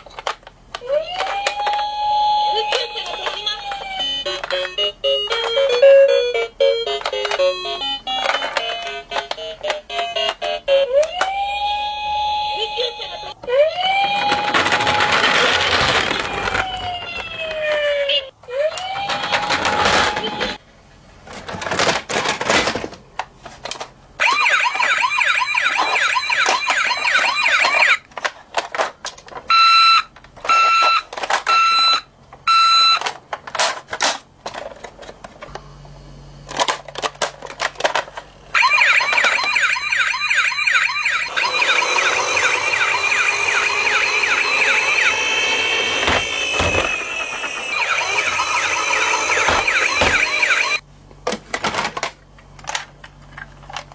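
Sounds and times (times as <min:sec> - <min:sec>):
toys clicking and knocking: 0:00.0 - 0:11.4, 0:12.4 - 0:20.6, 0:21.4 - 0:35.5, 0:36.5 - 0:53.9
toy siren wailing: 0:00.8 - 0:20.6, 0:24.2 - 0:28.0, 0:29.5 - 0:33.1, 0:38.5 - 0:50.8.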